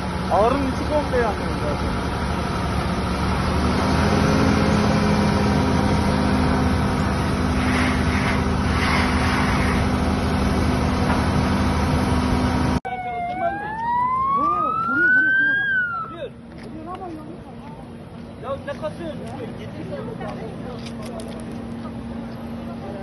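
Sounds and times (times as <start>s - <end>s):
engine running: 0.0s - 23.0s
rushing hiss: 7.5s - 10.0s
siren wailing: 12.8s - 16.3s.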